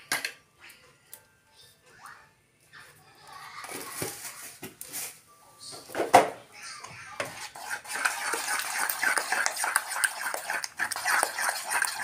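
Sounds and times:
spoon scraping batter in metal bowl: 7.2 - 12.0.

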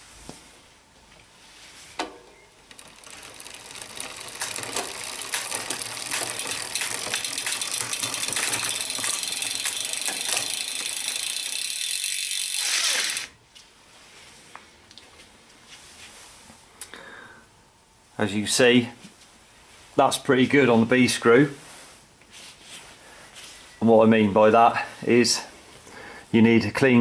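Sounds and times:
bicycle chain rattling and clicking: 2.6 - 13.3.

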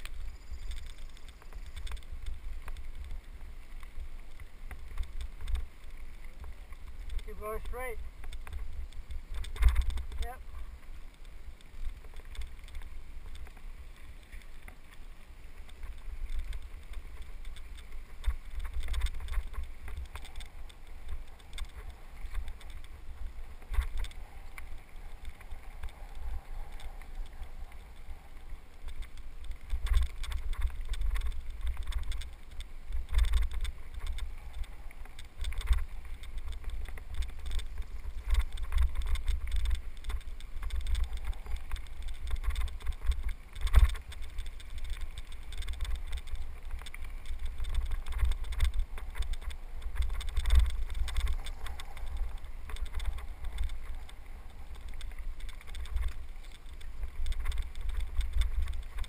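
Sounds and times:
bicycle knocks and rattles: 6.4 - 10.4, 54.8 - 59.0.

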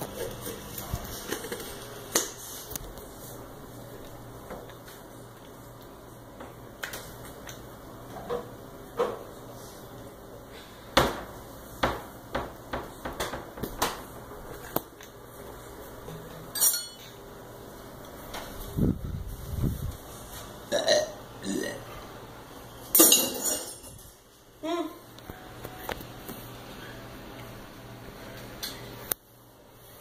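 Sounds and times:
dishes clattering: 16.5 - 17.2, 22.9 - 24.0.

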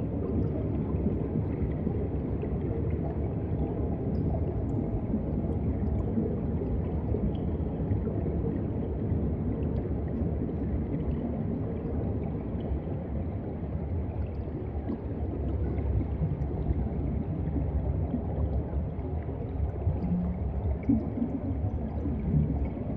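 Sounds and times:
underwater water movement: 0.0 - 22.9.

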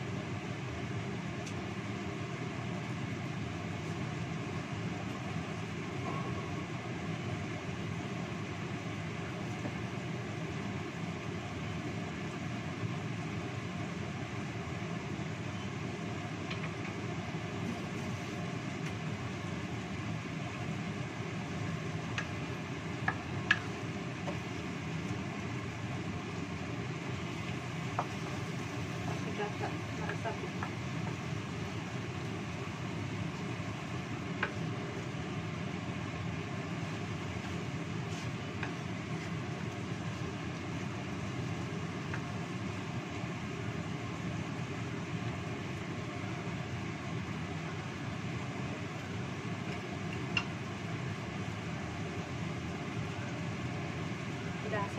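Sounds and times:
gas burner hiss: 0.0 - 54.9
sauce sizzling and bubbling: 0.1 - 54.5
wooden spatula knocking a pan: 28.0 - 28.3.

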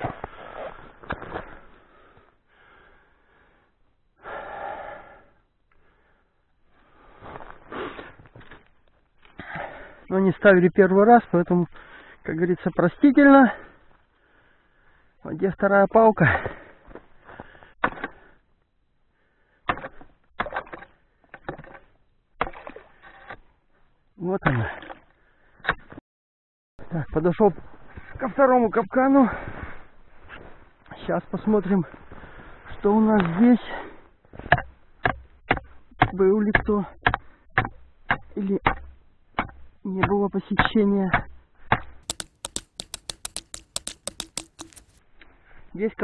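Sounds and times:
wooden pole knocking on ice: 41.1 - 45.0.

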